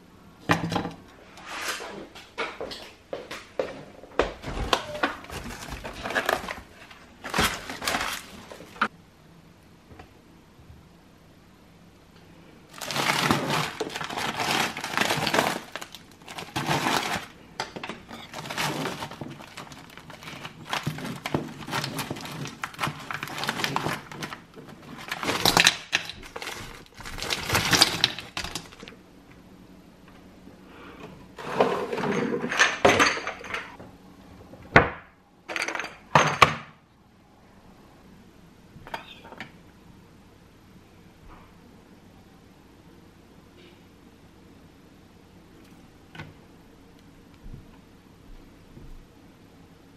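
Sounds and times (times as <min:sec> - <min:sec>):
crinkly handling noise: 0:04.4 - 0:08.9, 0:12.7 - 0:29.0.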